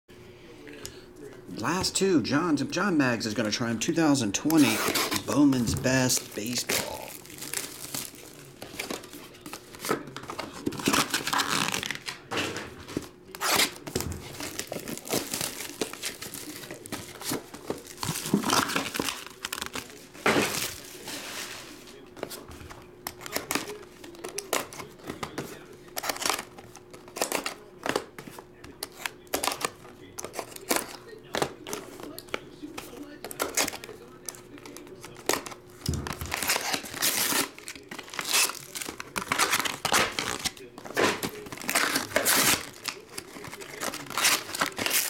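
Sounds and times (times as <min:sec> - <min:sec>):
plastic wrapping crinkling and tearing: 0:04.5 - 0:12.3, 0:12.9 - 0:22.0, 0:33.2 - 0:45.0.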